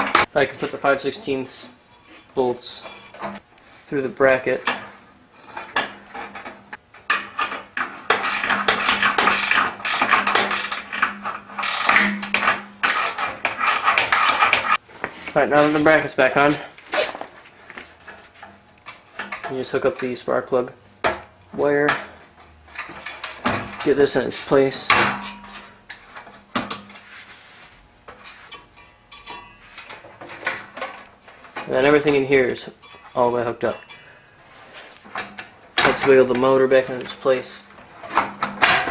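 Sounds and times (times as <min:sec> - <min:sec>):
clicks and knocks of metal parts: 0:05.6 - 0:14.8, 0:35.0 - 0:38.9
ratchet wrench clicking: 0:11.6 - 0:12.0
metal tools rattling: 0:28.5 - 0:34.2.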